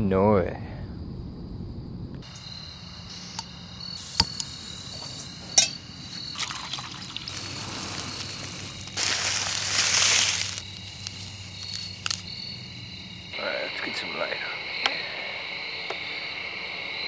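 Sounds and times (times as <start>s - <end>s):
gas stove hissing: 2.2s - 12.3s
packet contents rustling into pot: 6.4s - 12.2s.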